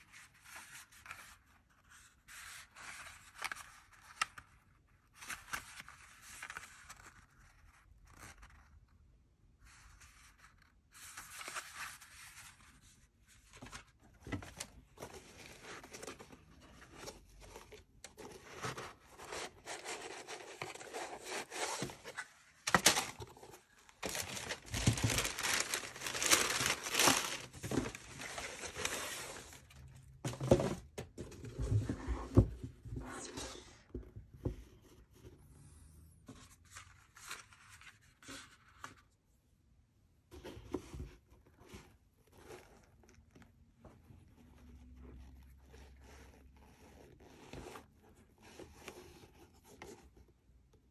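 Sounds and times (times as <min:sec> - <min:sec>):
tissue paper rustling: 0:11.0 - 0:30.0
cardboard box handled: 0:11.0 - 0:33.3.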